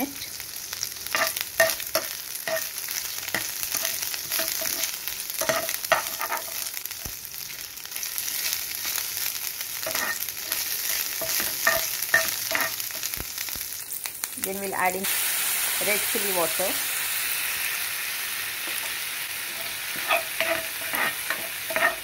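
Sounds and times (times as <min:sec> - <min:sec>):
food sizzling in oil: 0:00.0 - 0:22.0
spatula scraping pan: 0:03.3 - 0:06.6, 0:09.8 - 0:12.8, 0:18.7 - 0:22.0.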